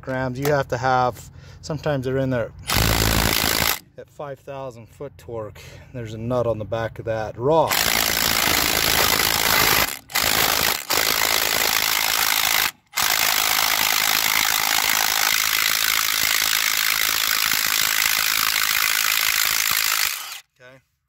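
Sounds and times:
impact driver hammering: 0:02.7 - 0:03.8, 0:07.7 - 0:20.4.

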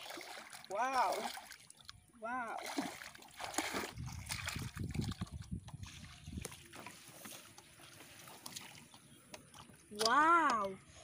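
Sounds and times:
water splashing and sloshing: 0:00.0 - 0:11.0.

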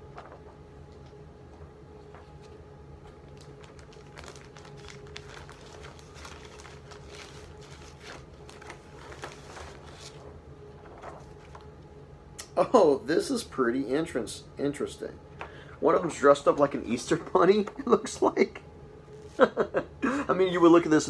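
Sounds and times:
plastic sleeve crinkling: 0:02.0 - 0:11.7.

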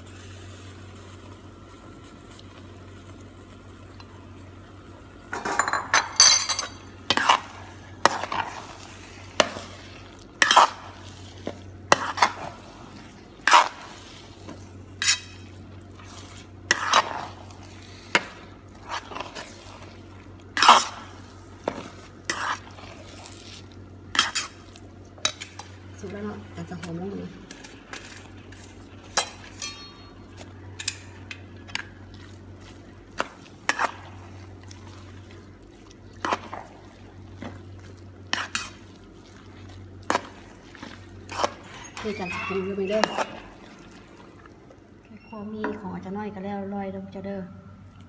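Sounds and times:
steady low hum: 0:00.0 - 0:48.0
metal spatula scraping frying pan: 0:10.4 - 0:10.8, 0:15.0 - 0:15.5.

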